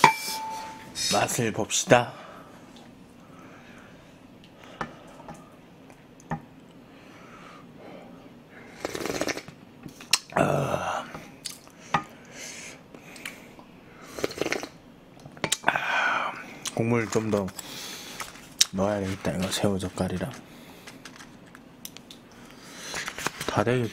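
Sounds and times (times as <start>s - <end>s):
person slurping soup: 8.7s - 9.5s, 14.1s - 14.8s.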